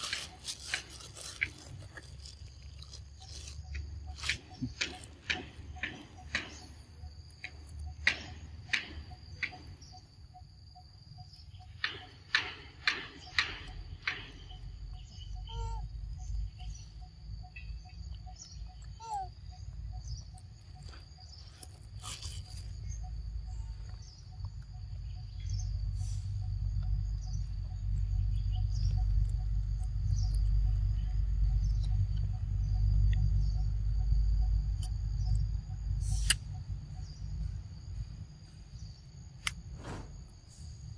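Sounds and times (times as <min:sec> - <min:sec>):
monkey crunching and chewing: 0:00.0 - 0:05.3.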